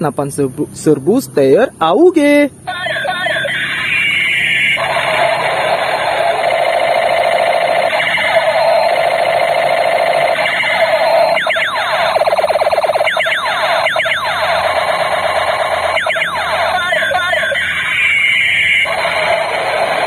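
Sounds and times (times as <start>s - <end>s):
steady electronic buzz: 3.0s - 20.0s
rapid falling electronic zaps: 4.8s - 20.0s
warbling electronic sound: 4.8s - 20.0s.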